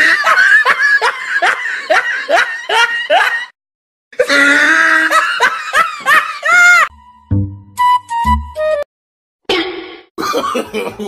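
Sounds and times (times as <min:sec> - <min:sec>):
laughter: 0:00.0 - 0:03.6, 0:04.8 - 0:06.9, 0:10.2 - 0:11.0.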